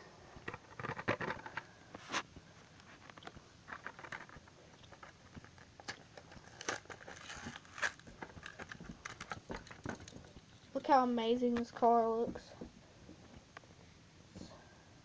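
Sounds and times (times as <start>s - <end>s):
plastic blister pack crinkling: 0.4s - 10.8s.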